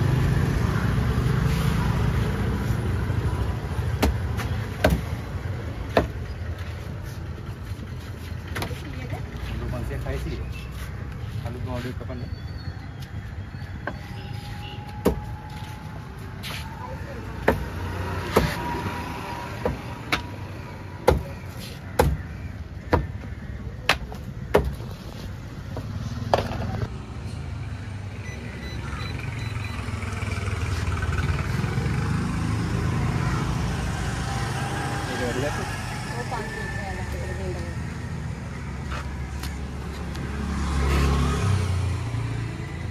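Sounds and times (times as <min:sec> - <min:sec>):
vehicle engine rumble passing: 0:25.3 - 0:42.9.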